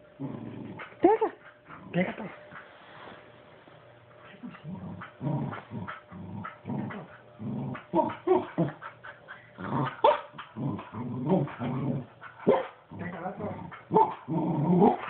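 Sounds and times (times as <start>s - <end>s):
puppy grumbling: 4.3s - 15.0s.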